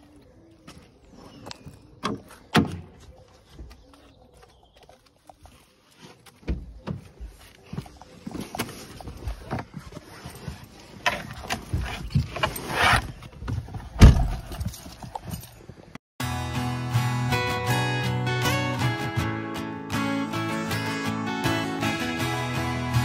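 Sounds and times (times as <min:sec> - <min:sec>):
shuffling steps: 0:00.0 - 0:16.0
acoustic guitar music: 0:16.2 - 0:23.0.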